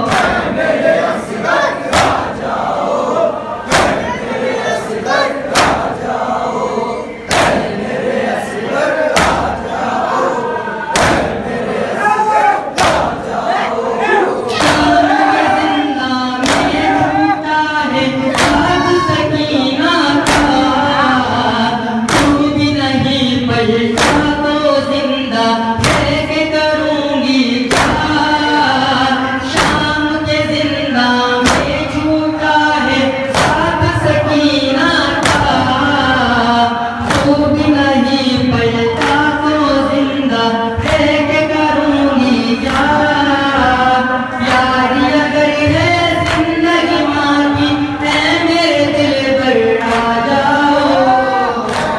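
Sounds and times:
men chanting in chorus: 0.0 - 51.9
hands slapping chests: 3.7 - 4.1, 5.5 - 5.9, 7.3 - 7.7, 11.0 - 11.4, 12.8 - 13.2, 16.4 - 17.0, 33.3 - 33.6, 37.0 - 37.4, 39.0 - 39.3, 51.6 - 51.9.

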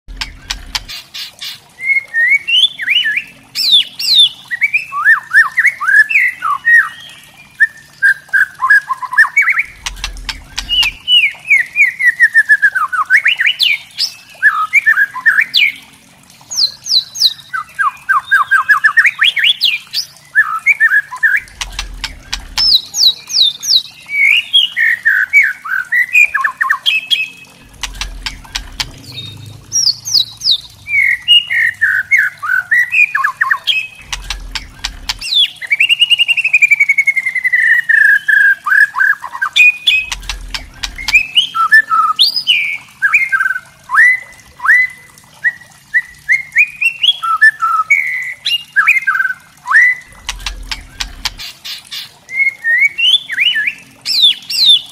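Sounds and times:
bird singing chattering phrases: 0.1 - 12.0, 19.4 - 25.4, 26.3 - 35.9, 39.2 - 42.9, 49.9 - 54.8.

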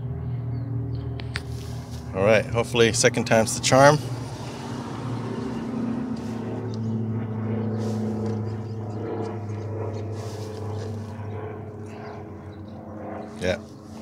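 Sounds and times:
low engine drone: 0.0 - 14.0.

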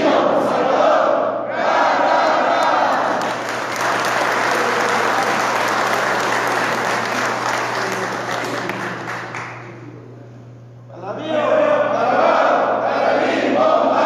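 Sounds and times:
crowd applauding: 2.6 - 10.2.

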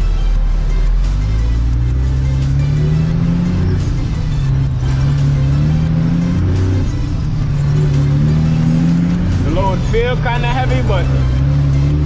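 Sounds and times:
diesel truck engine pulling hard: 0.9 - 12.0.

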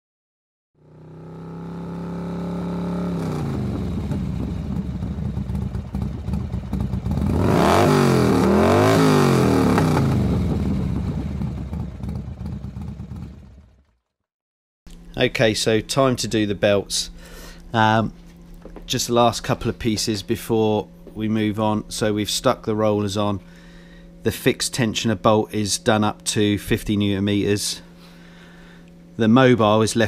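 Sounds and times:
motorcycle engine revving: 0.8 - 14.1.

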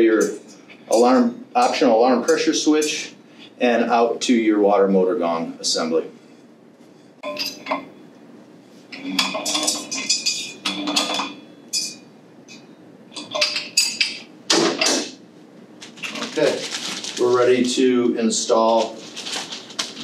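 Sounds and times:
wrench clinking on metal pipe: 9.2 - 12.6.

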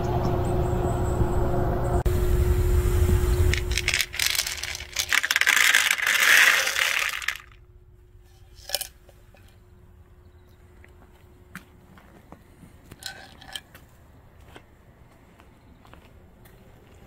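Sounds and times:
low rumble: 0.0 - 11.5
dry kibble rattling into tray: 3.5 - 7.6, 8.3 - 9.5, 12.9 - 13.7.

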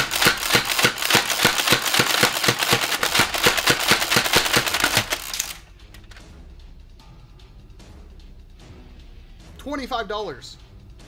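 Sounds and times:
foam dart blaster firing: 0.0 - 5.4.

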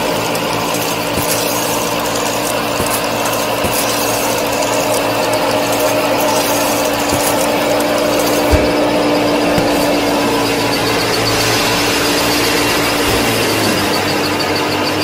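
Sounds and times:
model thresher mechanical whir: 0.0 - 15.0.

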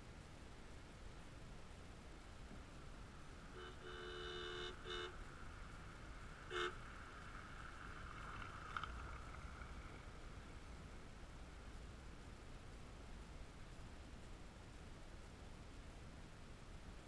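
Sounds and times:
car passing with tyre noise: 0.0 - 17.0
car horn honking: 3.5 - 5.2, 6.5 - 6.8.

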